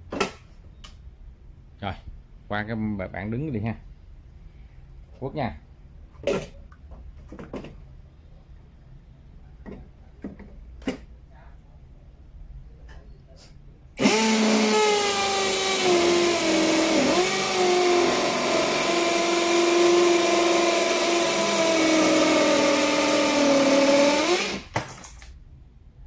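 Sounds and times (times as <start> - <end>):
cordless drill drilling into brick: 14.0 - 24.8.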